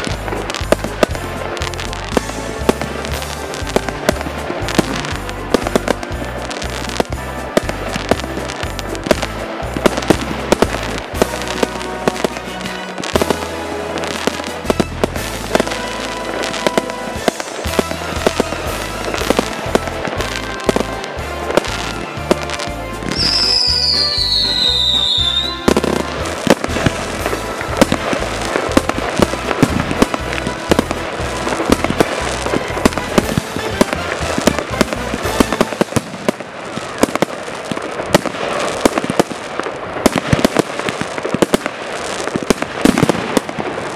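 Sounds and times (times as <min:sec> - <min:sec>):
falling firework whistle: 0:00.0 - 0:43.9
fireworks bangs and crackling pops: 0:00.0 - 0:43.9.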